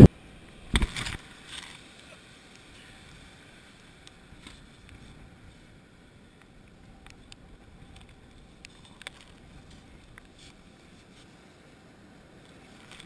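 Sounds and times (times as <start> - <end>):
wind on microphone: 0.0 - 1.2
surf: 0.0 - 13.0.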